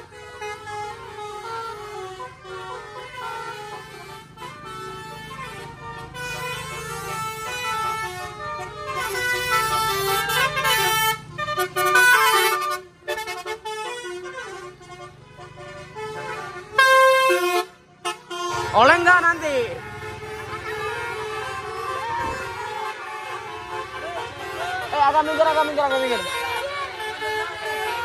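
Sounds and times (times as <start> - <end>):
musical air horn playing a tune: 0.0 - 18.8.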